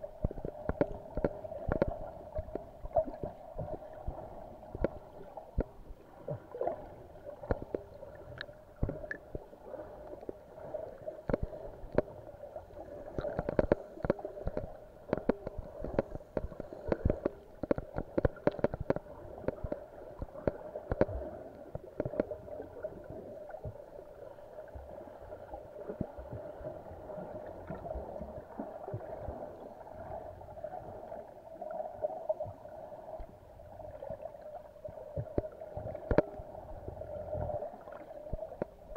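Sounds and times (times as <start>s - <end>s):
water gurgling: 0.0s - 38.9s
sharp clicks and crackles: 0.1s - 3.8s, 4.7s - 5.8s, 7.4s - 9.3s, 11.2s - 12.2s, 13.1s - 22.4s, 35.2s - 36.4s, 38.3s - 38.9s.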